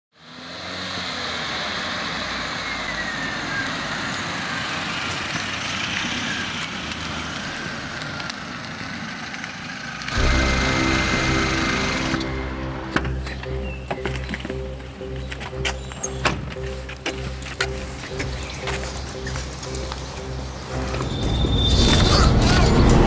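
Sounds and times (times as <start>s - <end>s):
car engine and tyre noise: 0.1s - 23.0s
loud music: 10.2s - 16.7s, 17.6s - 23.0s.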